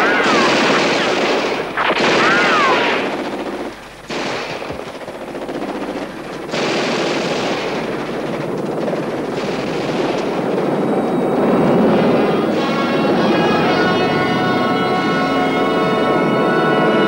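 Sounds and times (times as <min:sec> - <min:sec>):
rapid machine-gun fire: 0:00.0 - 0:12.8.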